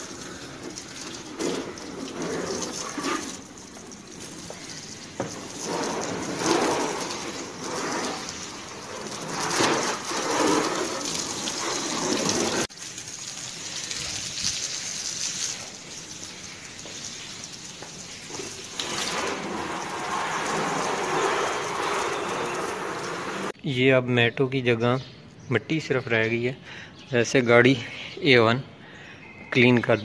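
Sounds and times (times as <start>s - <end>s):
hose water spraying on car: 0.0s - 23.6s.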